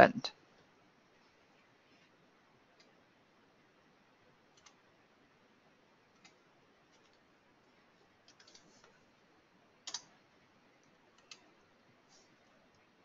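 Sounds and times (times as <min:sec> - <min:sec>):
computer mouse clicks: 0:02.8 - 0:03.0, 0:04.5 - 0:04.8, 0:06.1 - 0:07.2, 0:08.2 - 0:09.0, 0:09.8 - 0:10.1, 0:10.8 - 0:11.5
keyboard keystrokes: 0:08.3 - 0:08.6, 0:09.8 - 0:10.1.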